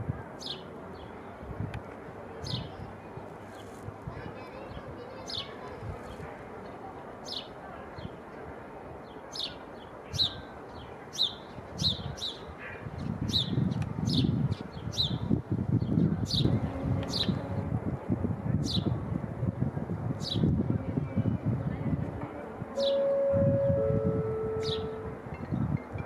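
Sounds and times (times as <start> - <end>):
bird chirping: 22.8 - 25.0.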